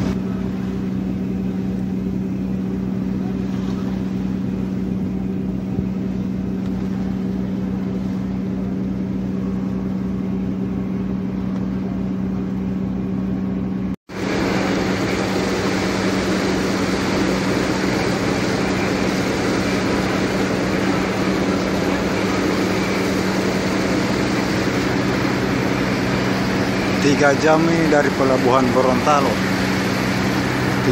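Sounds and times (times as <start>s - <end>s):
wake water rushing: 0.0s - 11.4s, 14.1s - 30.9s
ferry engines droning: 0.0s - 30.9s
wind: 0.0s - 30.9s.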